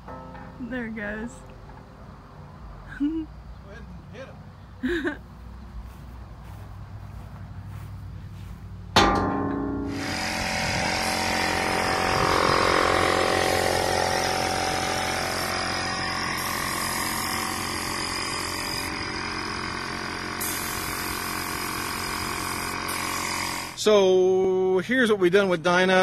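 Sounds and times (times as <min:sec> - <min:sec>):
air compressor humming: 0:04.5 - 0:23.8
spray gun hissing: 0:09.9 - 0:23.8.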